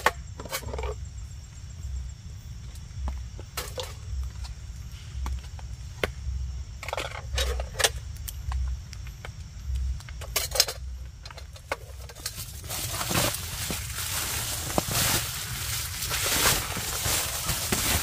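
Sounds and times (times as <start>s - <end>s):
metallic clatter and scraping: 0.0s - 1.0s, 6.8s - 8.0s, 10.2s - 18.0s.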